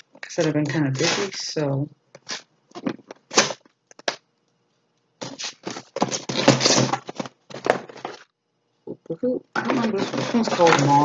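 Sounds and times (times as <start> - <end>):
packaging rustling and scraping: 0.3 - 1.4, 2.2 - 4.2, 5.2 - 8.3, 9.6 - 11.0.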